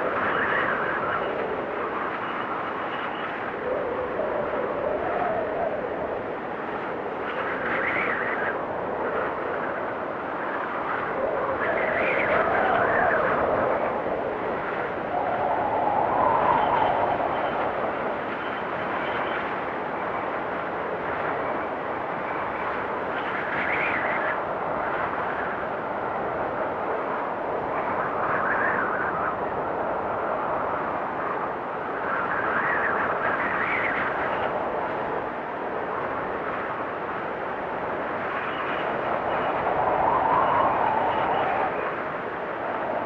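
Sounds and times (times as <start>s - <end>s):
strong blizzard wind: 0.0s - 43.0s.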